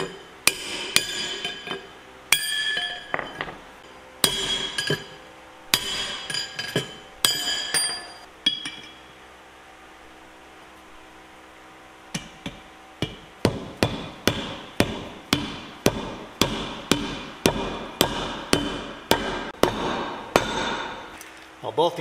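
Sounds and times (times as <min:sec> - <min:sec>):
hammer striking metal: 0:00.0 - 0:03.6, 0:04.2 - 0:09.0, 0:12.1 - 0:21.2.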